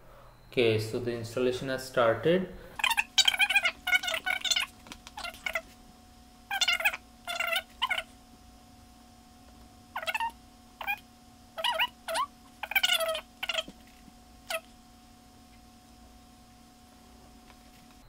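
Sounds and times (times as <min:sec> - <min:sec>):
steady electrical hum: 0:00.0 - 0:18.0
sped-up high-pitched chatter: 0:02.8 - 0:05.8, 0:06.5 - 0:08.1, 0:10.0 - 0:11.0, 0:11.6 - 0:13.7.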